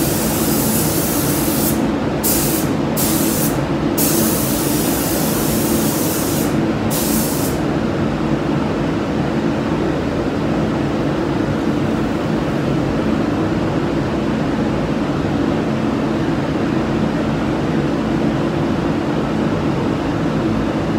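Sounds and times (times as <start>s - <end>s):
paint spray gun hissing: 0.0s - 7.6s
ventilation humming drone: 0.0s - 20.9s.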